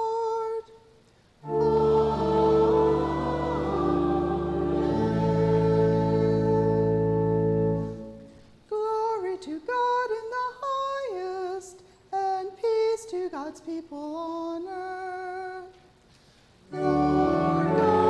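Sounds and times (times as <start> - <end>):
congregation singing: 1.4 - 8.3, 16.7 - 18.0
organ bass: 1.4 - 8.4, 16.7 - 18.0.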